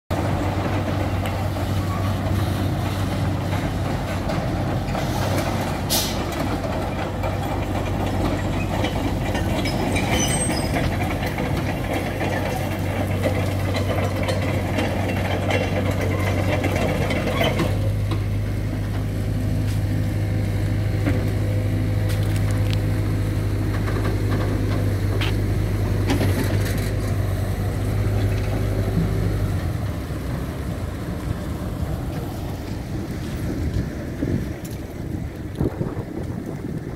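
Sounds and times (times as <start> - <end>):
heavy diesel engines running: 0.1 - 36.9
brief hiss: 5.9 - 6.3.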